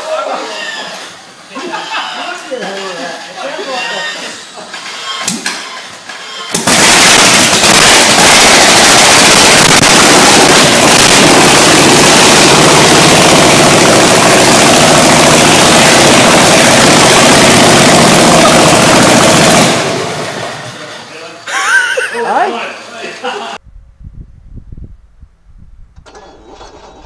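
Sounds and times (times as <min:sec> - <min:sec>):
engine running through open exhaust: 0:06.7 - 0:20.8.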